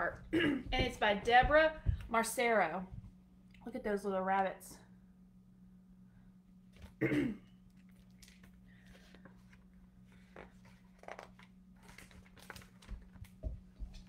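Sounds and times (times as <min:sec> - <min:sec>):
low steady hum: 0:00.0 - 0:14.0
soft bumps: 0:00.6 - 0:02.3
book pages rustling: 0:07.8 - 0:14.0.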